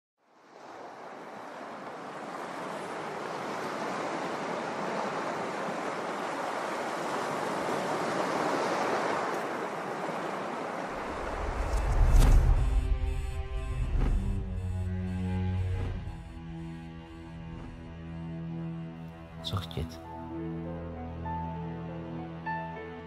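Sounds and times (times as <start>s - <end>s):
waves washing onto rocky shore: 0.6s - 11.4s.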